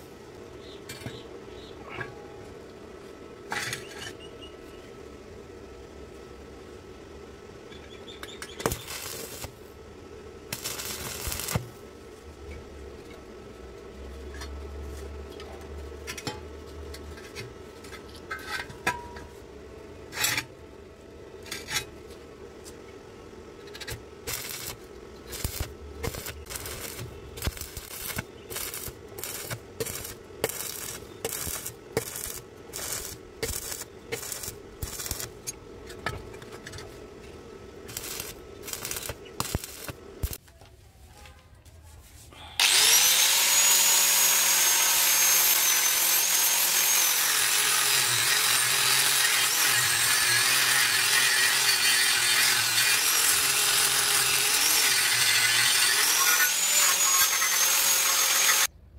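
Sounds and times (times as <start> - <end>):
steady low hum: 0.0 - 40.4
welding arc crackling and sputtering: 7.9 - 9.8, 10.4 - 13.2, 23.6 - 35.6, 37.7 - 40.4, 42.6 - 58.7.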